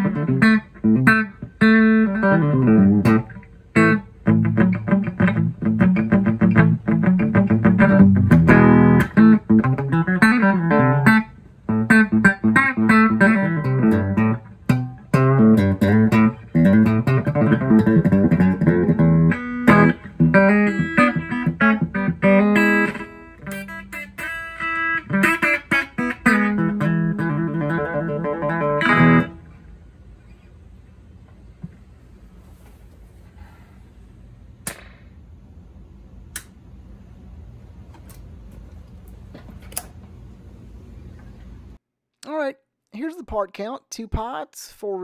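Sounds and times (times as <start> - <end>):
electric guitar notes and chords: 0.0 - 29.6.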